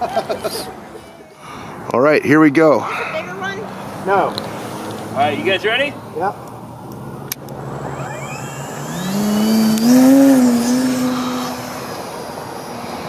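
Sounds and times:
propeller buzz: 6.7s - 13.0s
electric motor whine: 7.5s - 13.0s.

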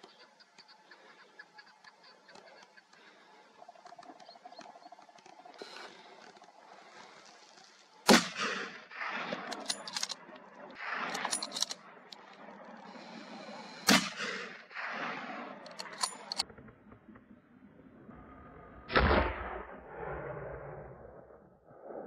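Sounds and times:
small clicks: 0.0s - 7.9s, 9.4s - 13.3s, 15.6s - 16.4s
rifle shots with echo: 8.0s - 10.0s, 13.8s - 15.4s.

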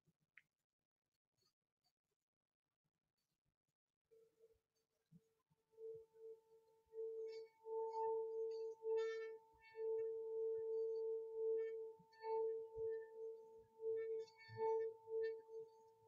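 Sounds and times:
singing bowl ringing: 6.8s - 16.0s.

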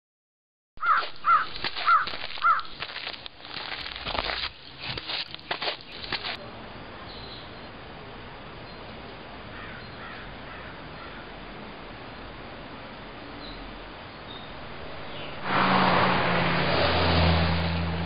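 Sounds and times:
crow cawing: 0.8s - 2.7s, 9.5s - 11.3s
faint high bird calls: 0.8s - 2.7s
faint outdoor hiss: 4.5s - 18.0s.

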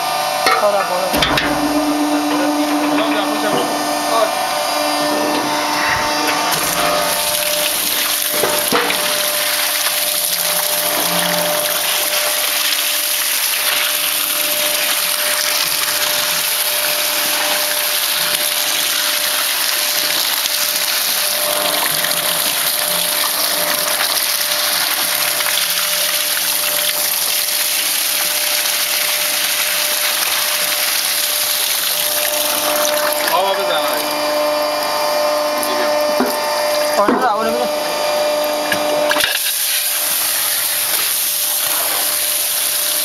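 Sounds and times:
pump humming: 0.0s - 43.0s
water rushing: 1.2s - 34.2s.

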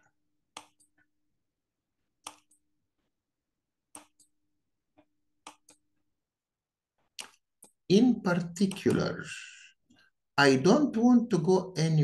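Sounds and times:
computer mouse clicking: 0.5s - 1.1s, 2.2s - 2.7s, 3.9s - 4.4s, 5.0s - 6.0s, 7.0s - 9.2s.

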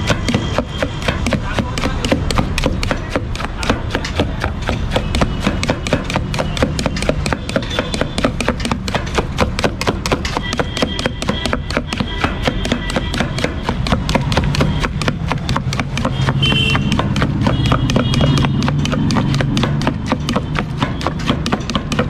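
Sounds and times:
knife chopping watermelon: 0.0s - 22.0s.

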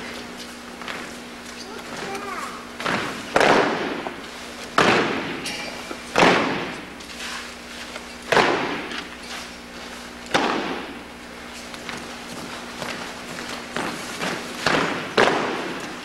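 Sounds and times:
marching steps: 0.0s - 16.0s
boots stamping on floor: 11.6s - 16.0s.

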